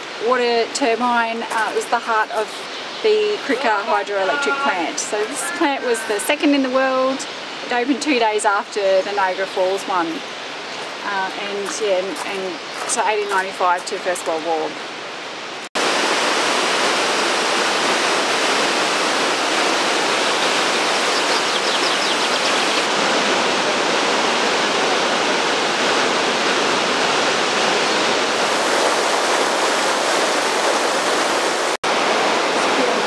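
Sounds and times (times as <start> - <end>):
water rushing over rocks: 13.3 - 33.0.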